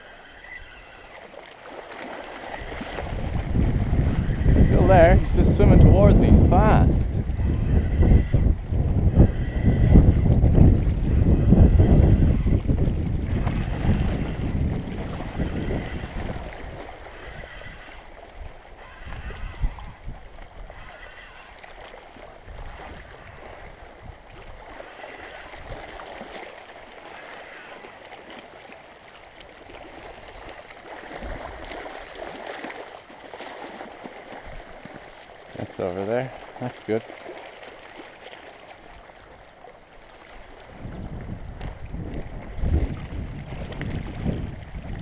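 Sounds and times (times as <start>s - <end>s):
water lapping: 0.0s - 45.0s
wind buffeting microphone: 2.6s - 21.3s, 40.4s - 45.0s.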